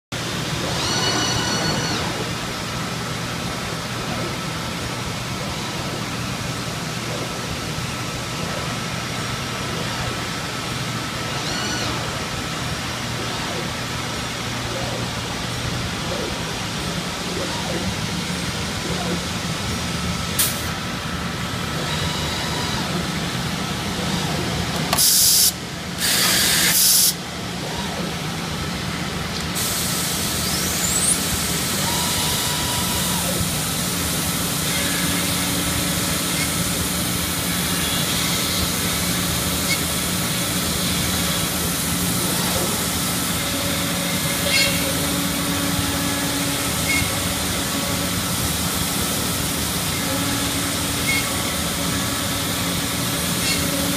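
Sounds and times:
machinery humming: 0.1 - 53.9
compressed air blasts: 24.9 - 27.2.

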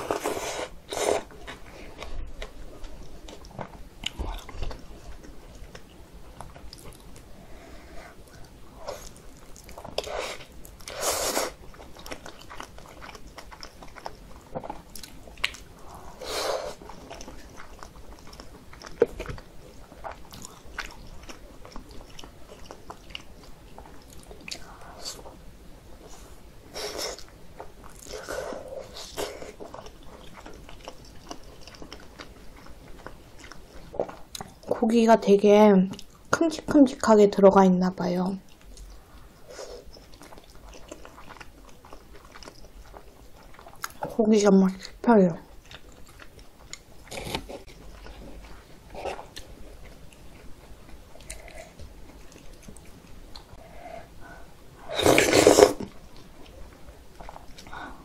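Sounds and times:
chewing dumpling: 0.0 - 35.0, 35.8 - 37.0, 38.3 - 58.0
slurping noodles: 54.9 - 55.8.

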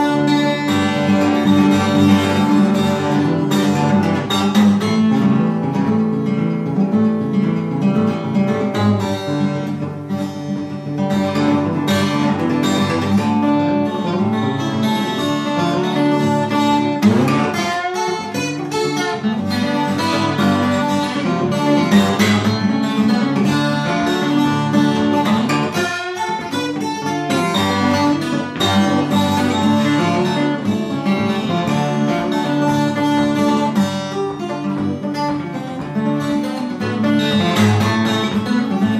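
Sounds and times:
twelve-string acoustic guitar: 0.0 - 38.9.

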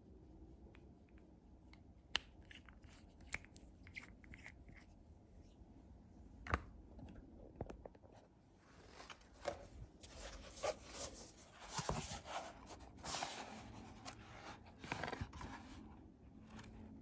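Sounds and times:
book pages rustling: 8.8 - 15.8.

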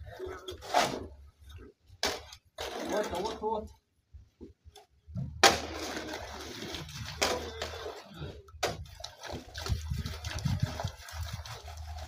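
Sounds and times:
hoe scraping gravel and cement: 0.0 - 1.2, 2.0 - 3.6, 5.4 - 12.0
water splashing onto mix: 8.6 - 12.0.

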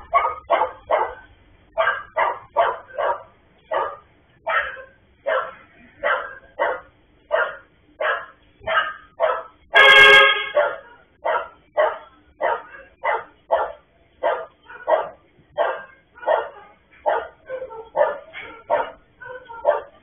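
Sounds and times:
dog barking: 0.0 - 20.0
loud steady tone: 9.7 - 10.6.

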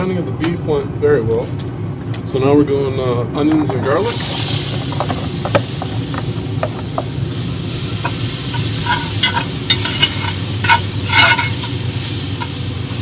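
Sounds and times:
onions sizzling in fat: 4.0 - 13.0
spoon scraping a pot: 8.0 - 11.8.

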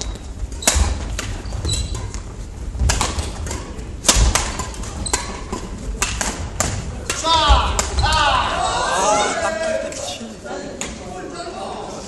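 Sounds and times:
sneakers squeaking: 0.0 - 5.8
rackets hitting shuttlecock: 0.0 - 8.2.

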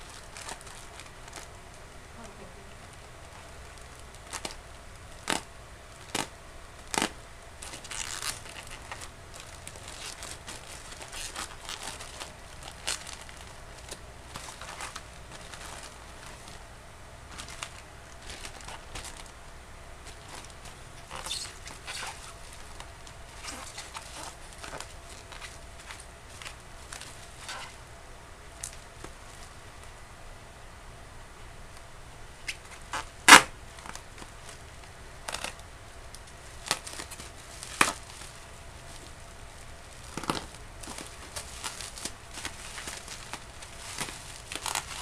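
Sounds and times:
plastic tearing and rustling: 0.0 - 1.5, 2.2 - 16.6, 17.2 - 19.4, 20.0 - 27.8, 32.4 - 45.0
bubble wrap and tape crinkling: 0.0 - 30.0, 31.7 - 45.0
scissors snipping plastic bag: 40.0 - 45.0.

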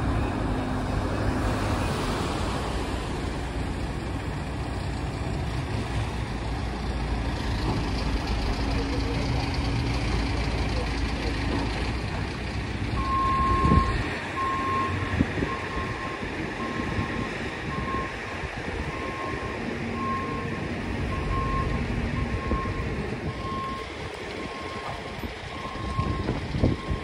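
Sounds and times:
reversing alarm beeping: 13.0 - 18.2, 18.8 - 27.0.

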